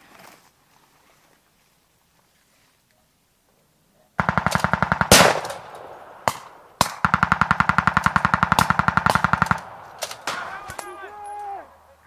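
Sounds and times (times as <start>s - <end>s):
machine gun firing bursts: 4.2s - 10.8s.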